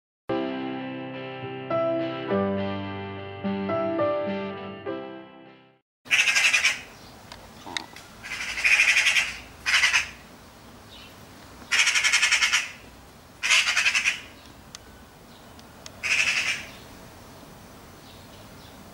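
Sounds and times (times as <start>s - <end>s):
magpie harsh rattling calls: 6.1s - 7.0s, 8.2s - 10.2s, 11.7s - 12.8s, 13.4s - 14.4s, 16.0s - 16.8s.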